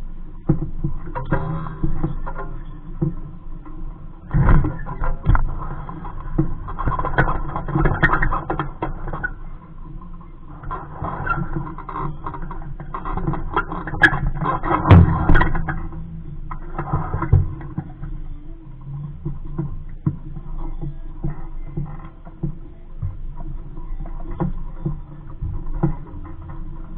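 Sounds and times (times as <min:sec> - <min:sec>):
water lapping against boat hull: 0:00.4 - 0:26.9
clicks and knocks from boat fittings: 0:04.2 - 0:09.4.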